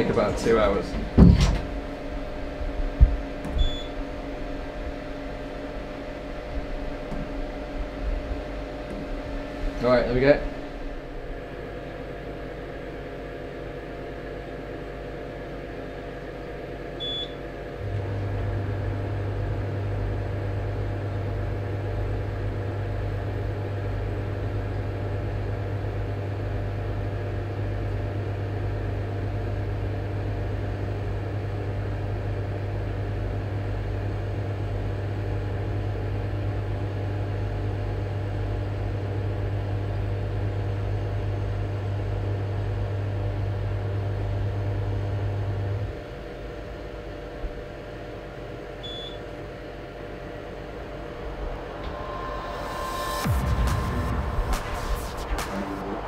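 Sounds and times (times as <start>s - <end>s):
machine humming: 0.0s - 56.0s
machine beeping: 3.5s - 4.1s.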